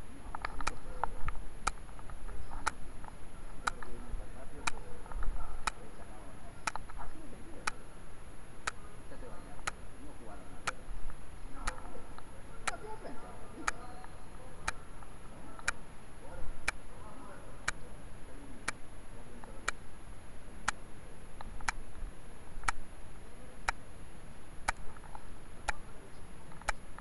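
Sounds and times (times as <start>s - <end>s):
faint muffled voices: 0.0s - 27.0s
steady ticking: 24.6s - 24.9s.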